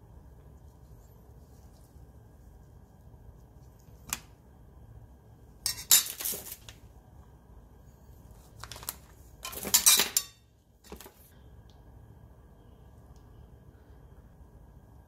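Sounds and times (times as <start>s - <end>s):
metal spoon clinking on steel bowl: 9.5s - 10.4s.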